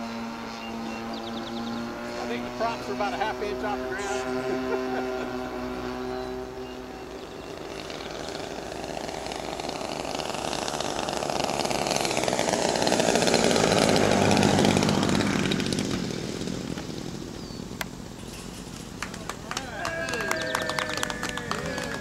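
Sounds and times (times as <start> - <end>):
model plane engines buzzing: 0.0 - 22.0.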